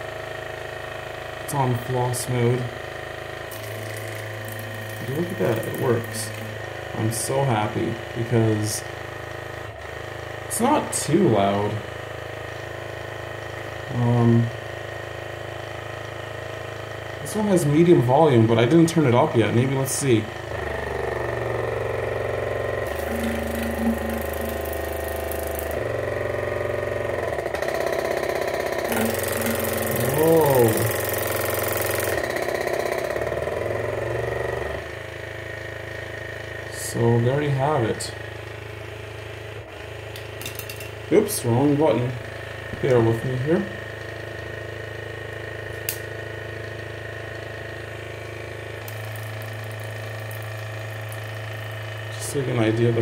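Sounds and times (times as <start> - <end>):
water flosser pump buzzing: 0.0 - 53.0
sharp click: 45.7 - 46.1.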